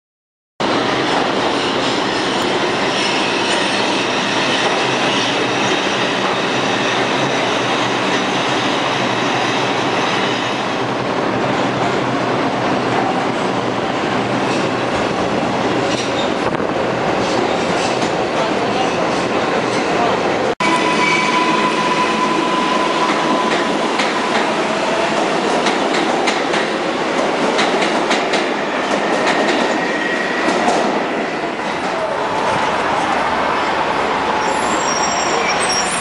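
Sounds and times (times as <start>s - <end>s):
subway train running: 0.6s - 36.0s
high wheel squeal: 20.6s - 23.8s, 34.3s - 36.0s.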